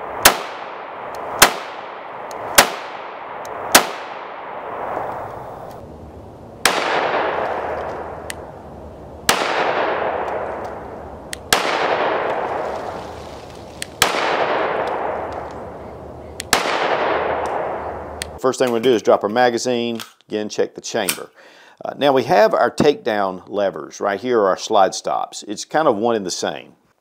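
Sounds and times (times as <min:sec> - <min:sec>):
pistol shots echoing: 0:00.0 - 0:04.9, 0:06.6 - 0:08.3, 0:09.3 - 0:10.8, 0:11.5 - 0:12.6, 0:14.0 - 0:15.5, 0:16.4 - 0:18.2.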